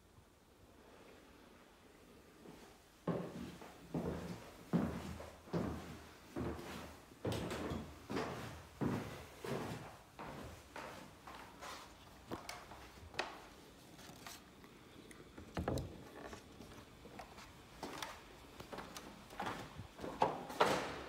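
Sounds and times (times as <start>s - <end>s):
faint rustles and scrapes: 9.4s - 14.6s.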